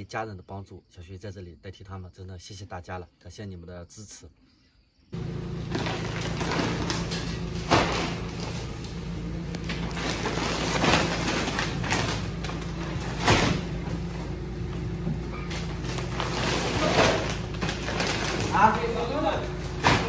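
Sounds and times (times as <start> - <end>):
steady low hum: 4.2 - 20.0
plastic rustling: 5.2 - 20.0
sacks thudding onto a pile: 5.6 - 20.0.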